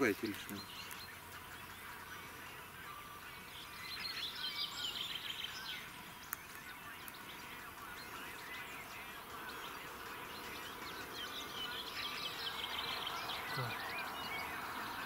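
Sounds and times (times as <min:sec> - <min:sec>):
songbird chirping: 0:00.0 - 0:15.0.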